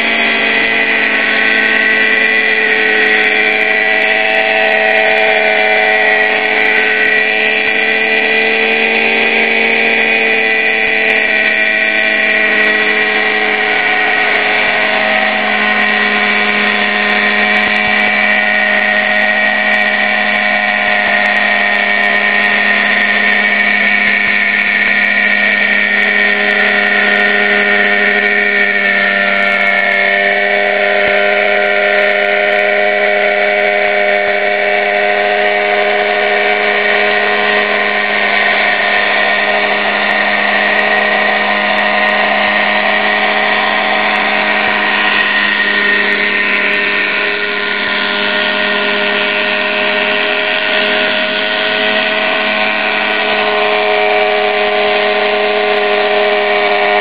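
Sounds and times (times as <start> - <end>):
model helicopter engine buzzing whine: 0.0 - 57.0.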